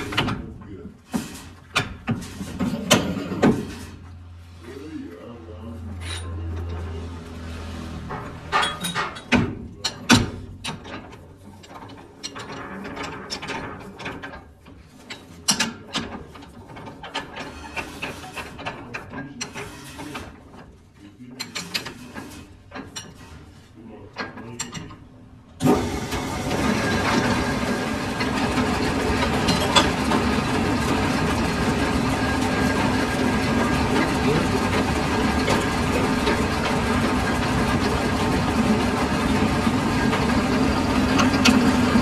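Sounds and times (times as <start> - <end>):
metal parts clanking: 8.2 - 10.0
machine running loudly: 25.6 - 42.0.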